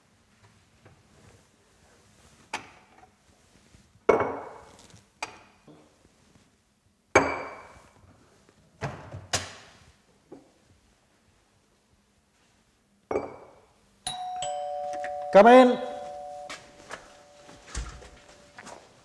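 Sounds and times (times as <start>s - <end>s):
glassy ring: 14.1s - 18.5s.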